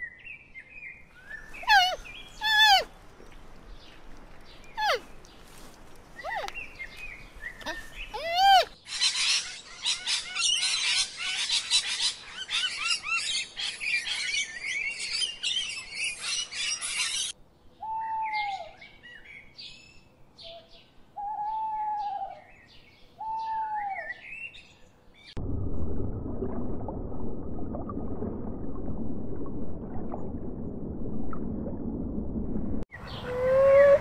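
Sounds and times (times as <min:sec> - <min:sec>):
birds chirping: 0:00.0 - 0:11.1
owl hooting: 0:01.6 - 0:02.9.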